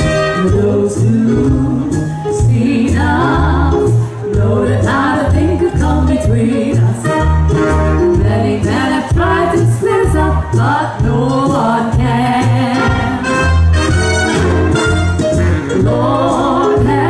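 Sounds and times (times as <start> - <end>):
live band playing: 0.0 - 17.0
women singing in harmony: 0.4 - 7.3, 8.1 - 13.3, 15.8 - 17.0.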